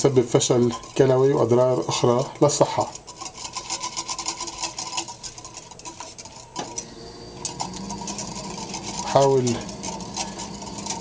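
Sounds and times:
whisk clicking against glass: 0:00.0 - 0:06.8.

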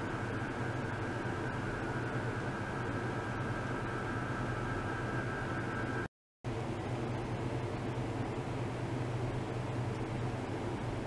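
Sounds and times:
lab equipment humming: 0:00.0 - 0:11.0.

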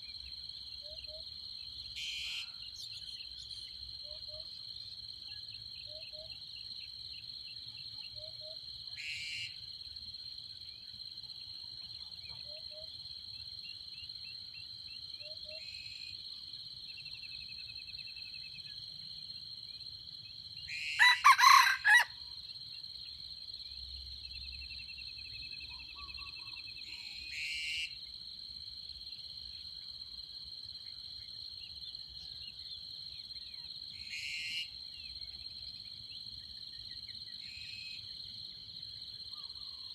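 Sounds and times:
insect chorus: 0:00.0 - 0:39.9
rooster crowing: 0:20.8 - 0:22.2.

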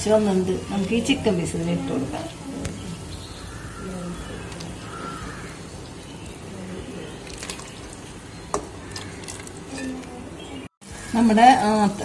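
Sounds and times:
broth bubbling at a boil: 0:00.0 - 0:09.8
chicken pieces dropped into liquid: 0:07.2 - 0:07.8.

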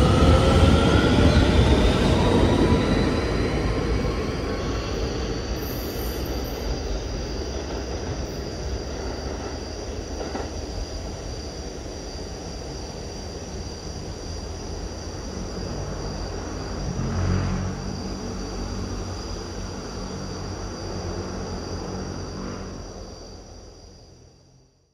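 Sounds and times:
high-pitched whine: 0:00.0 - 0:10.3
subway train rumbling: 0:00.0 - 0:24.8.

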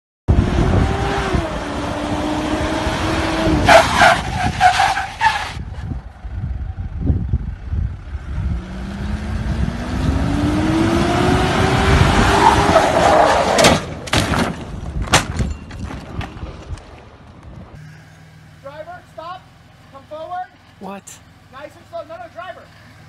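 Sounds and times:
car engine revving: 0:00.3 - 0:04.3, 0:08.1 - 0:13.6.

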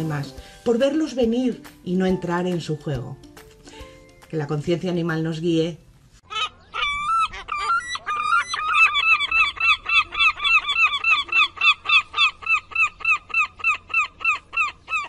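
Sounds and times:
animal honk-like calls: 0:06.3 - 0:15.0.

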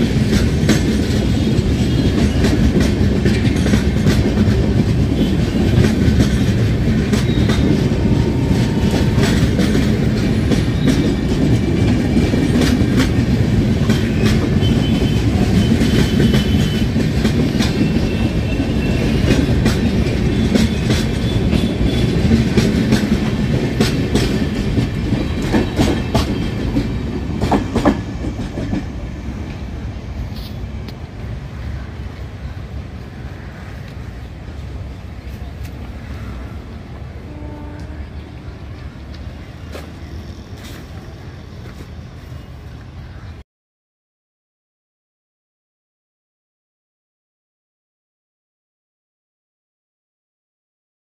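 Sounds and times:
train wheels clattering over rail joints: 0:00.0 - 0:29.7.

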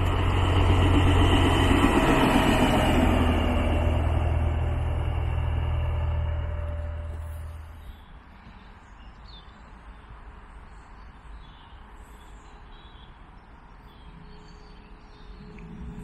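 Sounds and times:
low rumble: 0:00.0 - 0:08.2, 0:15.3 - 0:16.0.

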